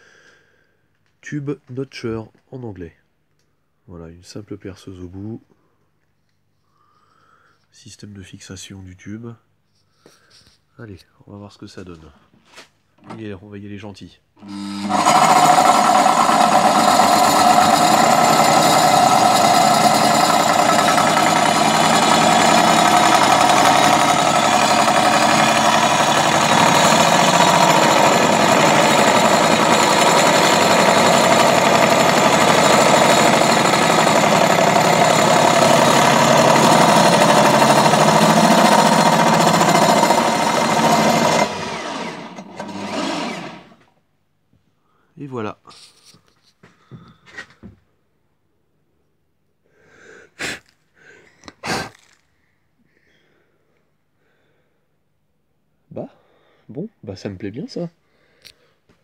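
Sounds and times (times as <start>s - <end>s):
electric drill motor whine: 14.4s - 43.8s
saw teeth grinding metal: 14.4s - 43.8s.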